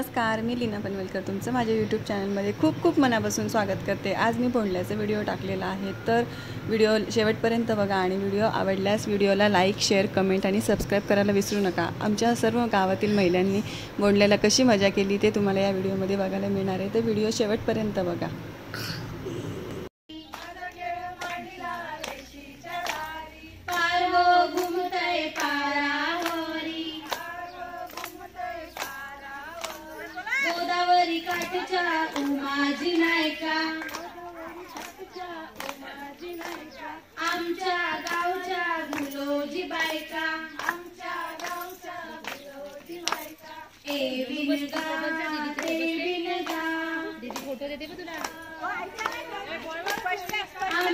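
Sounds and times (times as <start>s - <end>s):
women singing folk song: 20.1s - 50.9s
hands clapping steady beat: 20.3s - 23.9s, 24.5s - 30.7s, 31.3s - 50.9s.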